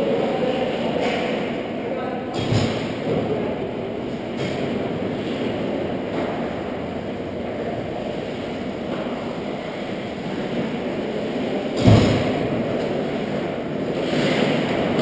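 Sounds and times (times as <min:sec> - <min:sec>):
low rumble of ice rink: 0:02.5 - 0:15.0
loud thump: 0:11.8 - 0:12.5.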